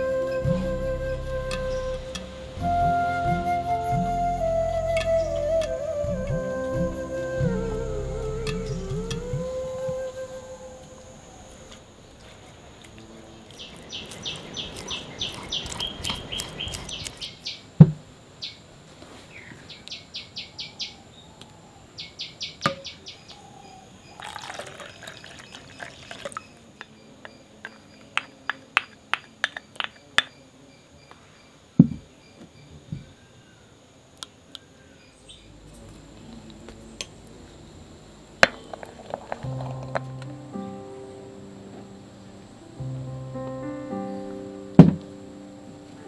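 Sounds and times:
steady high whine: 0:00.0 - 0:12.7, 0:35.1 - 0:46.0
birds chirping: 0:10.9 - 0:17.8, 0:19.3 - 0:33.6
spoon mashing pumpkin in bowl: 0:13.5 - 0:17.4
sharp knocks: 0:44.8 - 0:45.1.

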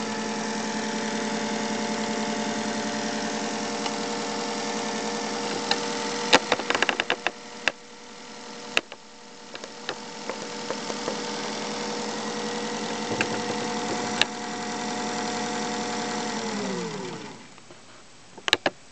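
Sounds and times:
sewing machine running: 0:09.5 - 0:17.4.

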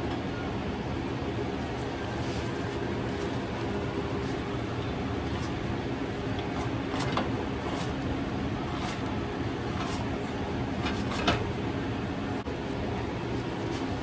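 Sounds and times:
low machine hum: 0:00.0 - 0:14.0
kitchen handling clicks and knocks: 0:10.8 - 0:11.5.

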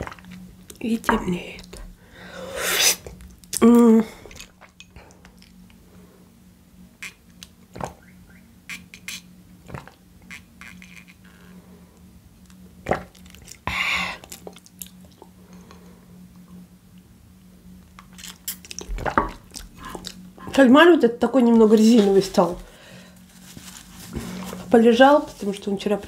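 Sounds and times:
low steady hum: 0:00.0 - 0:26.0
loud breathy exhale: 0:02.1 - 0:03.0
person humming: 0:03.6 - 0:04.3
mouth clicks: 0:07.0 - 0:11.4.

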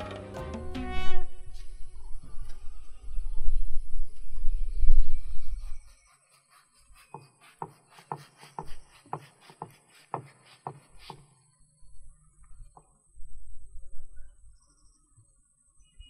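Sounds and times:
knife cutting fruit: 0:05.8 - 0:11.2.

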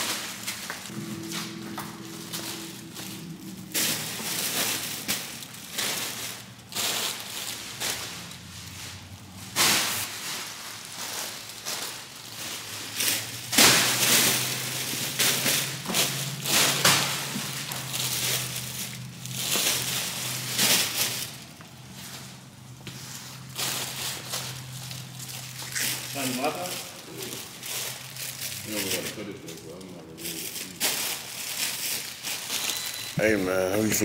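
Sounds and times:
plastic bags rustling and crinkling: 0:00.0 - 0:34.0.

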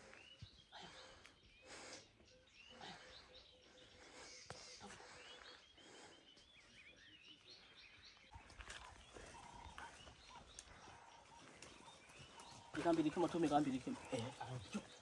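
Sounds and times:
faint bird chirps: 0:00.0 - 0:15.0
quiet bush ambience: 0:00.0 - 0:15.0.

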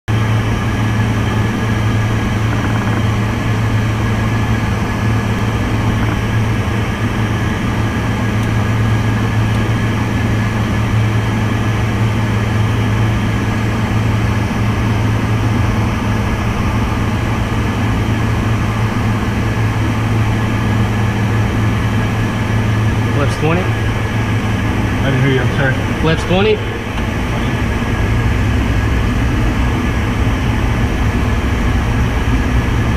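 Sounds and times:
aircraft cockpit hum: 0:00.0 - 0:32.9.

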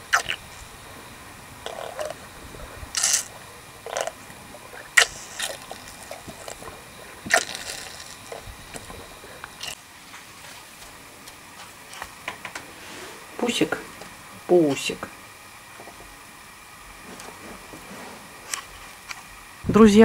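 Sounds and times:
cow slurping water: 0:00.0 - 0:12.2.

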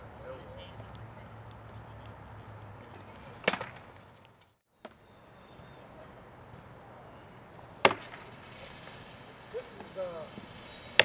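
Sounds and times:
wooden sword blows cracking: 0:03.4 - 0:03.9, 0:07.8 - 0:08.4.

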